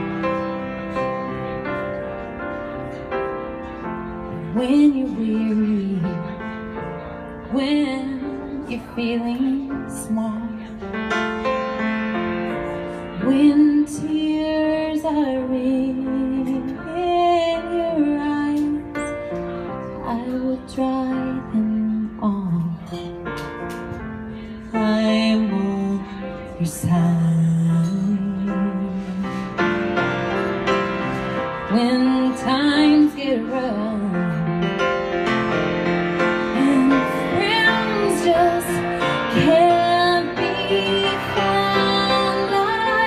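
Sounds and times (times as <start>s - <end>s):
grand piano chords: 0.0s - 43.0s
woman singing a ballad: 4.3s - 6.5s, 7.5s - 10.7s, 13.2s - 19.1s, 19.9s - 23.5s, 24.6s - 29.8s, 31.6s - 34.8s, 36.5s - 43.0s.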